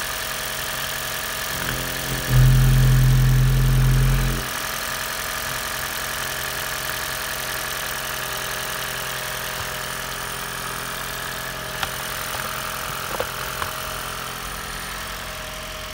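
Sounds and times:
car engine idling: 0.0 - 15.9
faint engine whine: 1.4 - 5.0.

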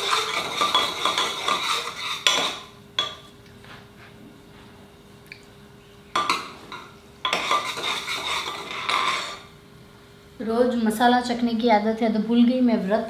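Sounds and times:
metal spoon scraping in a pot: 0.0 - 3.2, 6.2 - 9.5
faint hum: 0.0 - 13.0.

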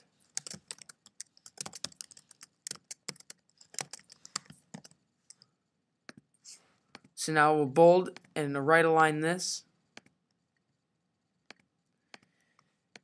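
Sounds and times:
typing on computer keyboard: 0.0 - 5.4.

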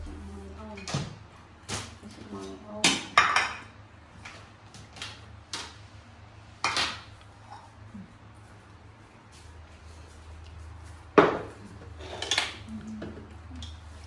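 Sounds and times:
dishes clattering on countertop: 2.8 - 3.7, 11.2 - 13.2.

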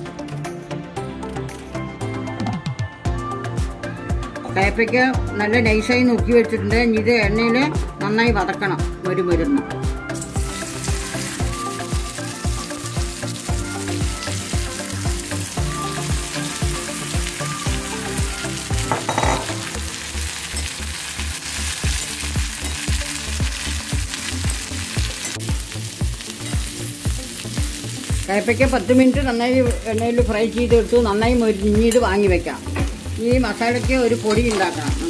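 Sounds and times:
background music with beat: 0.0 - 35.0
vegetables sizzling in oil: 10.2 - 35.0.

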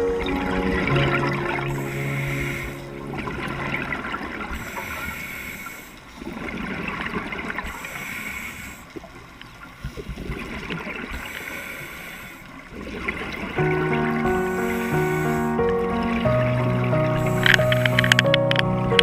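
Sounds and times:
gurgling exhaled bubbles: 0.0 - 11.5, 12.6 - 19.0
hissing regulator breaths: 1.6 - 3.0, 4.5 - 6.2, 7.6 - 9.0, 11.2 - 12.5, 14.1 - 15.9, 17.1 - 18.3.

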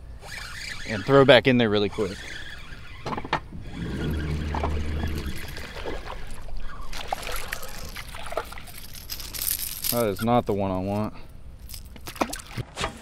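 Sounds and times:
water splashing: 3.5 - 9.4.

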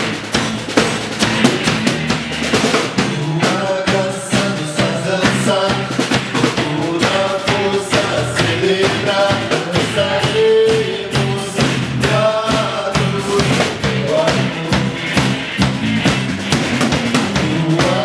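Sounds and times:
drum kit beat: 0.0 - 18.0
electric guitar: 0.0 - 18.0
man singing: 3.0 - 15.2, 17.2 - 18.0.

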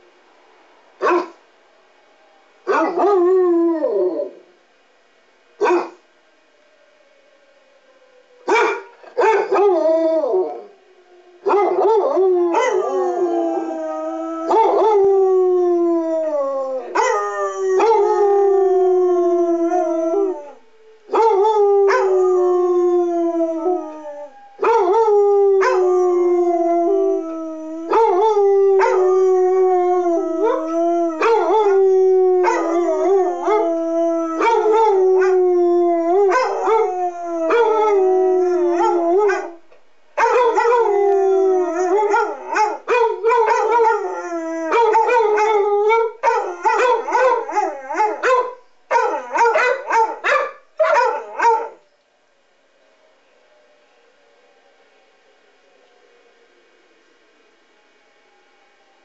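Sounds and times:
dogs howling: 2.4 - 4.4, 6.8 - 51.8
rotating warning siren: 52.8 - 59.0.

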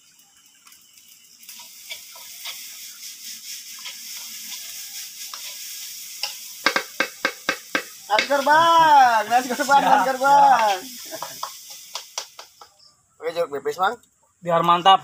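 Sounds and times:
rice sizzling in a wok: 0.0 - 13.0
utensil scraping and tapping pan: 6.2 - 8.4, 10.6 - 12.8
sharp knocks on pan: 6.6 - 8.3.

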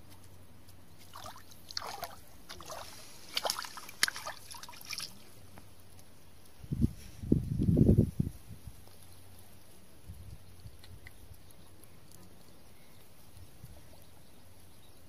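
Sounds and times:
fish splashing at water surface: 1.0 - 5.2.

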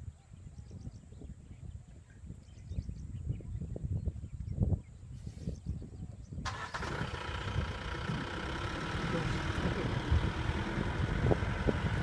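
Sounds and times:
vehicle engine starting and running: 6.4 - 12.0.

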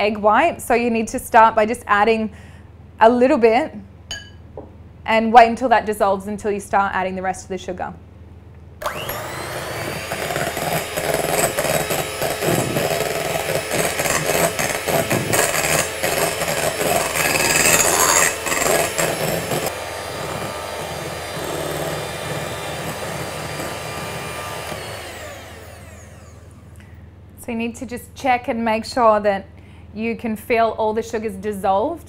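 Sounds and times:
electric hand mixer whipping: 8.8 - 26.8.

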